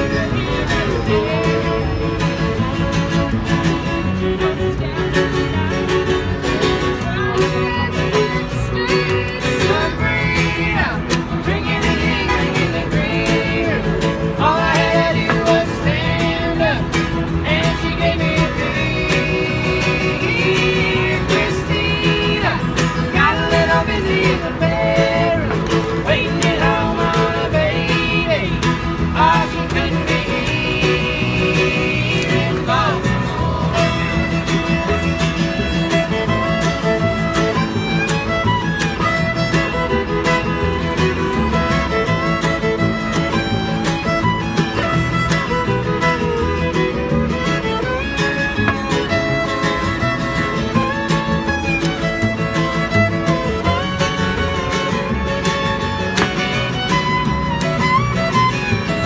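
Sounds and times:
acoustic guitar: 0:00.0 - 0:59.0
fiddle: 0:00.0 - 0:59.0
upright double bass: 0:00.0 - 0:59.0
woman singing: 0:07.0 - 0:16.8.

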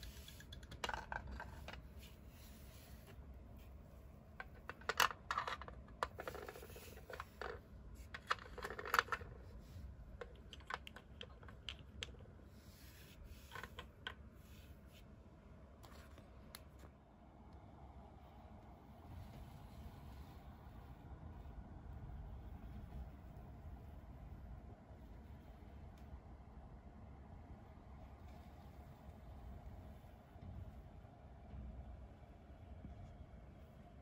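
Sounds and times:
plastic toy pieces clicking: 0:00.0 - 0:01.8, 0:04.4 - 0:09.4, 0:10.2 - 0:12.2.

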